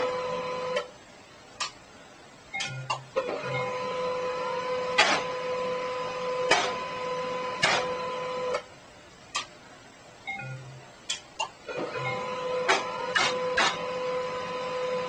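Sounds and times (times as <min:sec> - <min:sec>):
printer running with whine: 0:00.0 - 0:00.9, 0:03.2 - 0:08.7, 0:11.7 - 0:15.0
printer sharp clacks: 0:05.0 - 0:05.4, 0:06.5 - 0:06.8, 0:07.6 - 0:08.0, 0:12.7 - 0:13.9.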